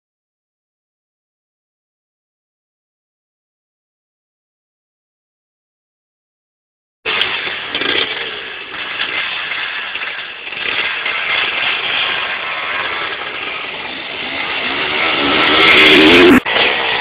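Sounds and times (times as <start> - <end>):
dirt bike engine revving: 7.1 - 17.0.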